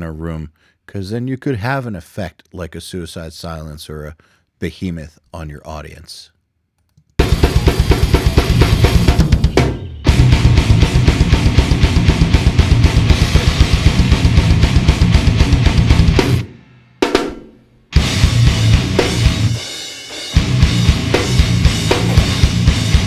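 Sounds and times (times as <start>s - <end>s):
deathcore band playing: 7.2s - 23.0s
rapid kick drum and snare: 7.2s - 23.0s.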